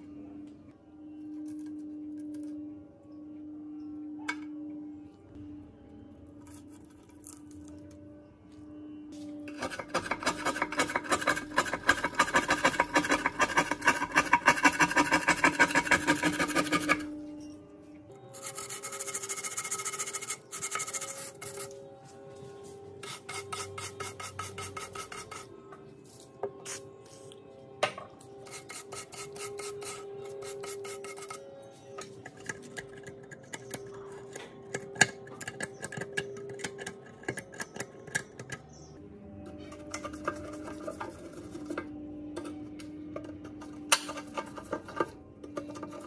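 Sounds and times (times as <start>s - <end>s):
faint background music: 0.0s - 46.0s
hand tool scraping rusty steel: 9.5s - 17.2s, 18.3s - 21.8s, 23.0s - 25.5s, 28.4s - 38.9s, 39.6s - 42.6s, 43.2s - 46.0s.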